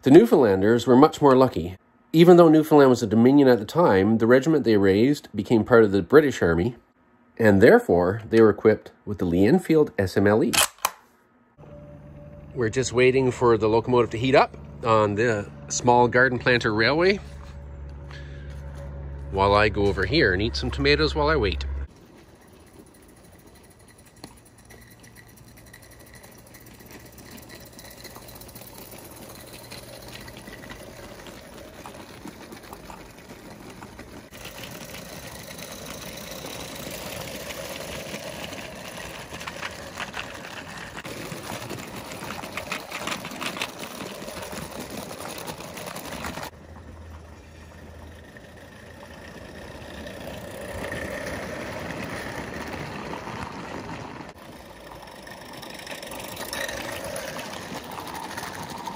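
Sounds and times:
toy steam locomotive chuffing: 21.8s - 58.9s.

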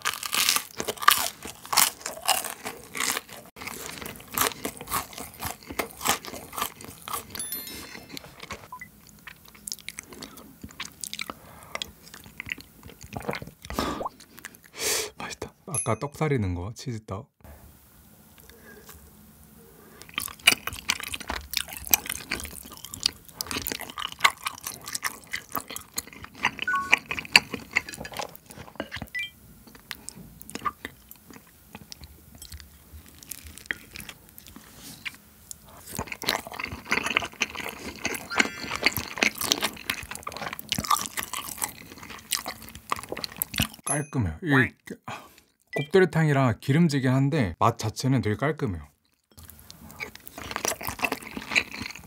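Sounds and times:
close-miked chewing: 0.0s - 14.7s, 20.0s - 43.8s, 49.0s - 52.0s.

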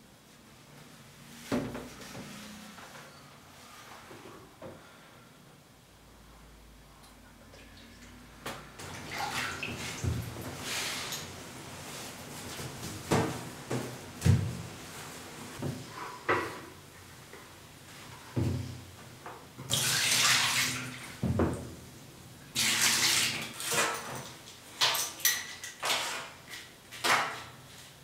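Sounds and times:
water splashing into bathtub: 8.8s - 10.6s, 19.7s - 21.2s, 22.5s - 24.4s.

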